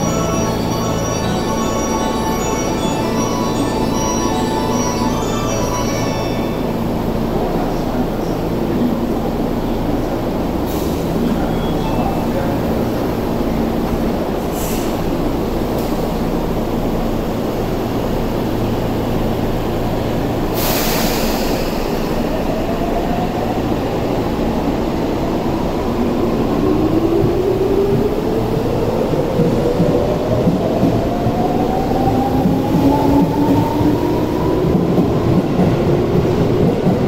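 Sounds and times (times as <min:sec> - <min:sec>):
sharp air hiss: 0:14.5 - 0:15.1, 0:20.5 - 0:22.3.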